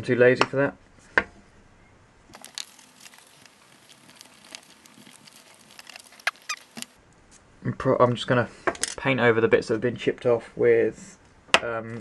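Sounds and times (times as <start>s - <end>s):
paintbrush scratching: 2.4s - 7.0s.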